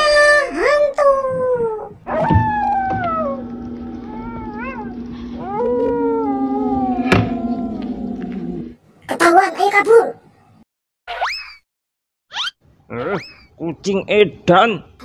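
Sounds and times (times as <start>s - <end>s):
steady low hum: 0.1s - 8.8s
cat yowling: 2.1s - 7.9s.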